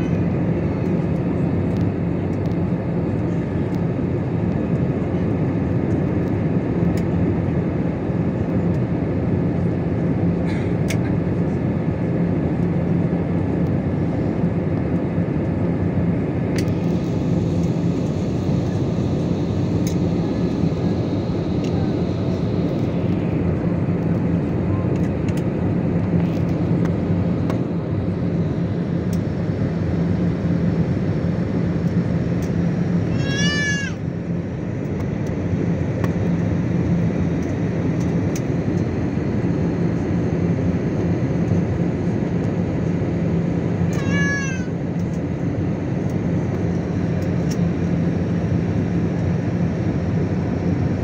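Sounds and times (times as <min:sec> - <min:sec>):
airliner cabin engine noise: 0:00.0 - 0:51.0
short high meow-like cry: 0:33.1 - 0:34.0, 0:43.9 - 0:44.8.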